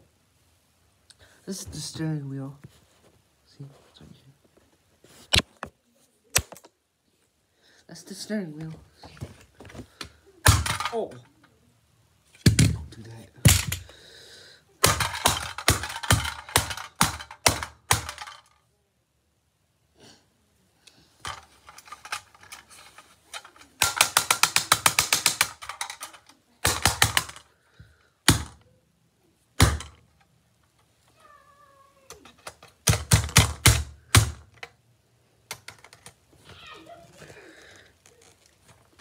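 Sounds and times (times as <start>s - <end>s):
screwdriver tapping toy car: 23.4s - 27.4s.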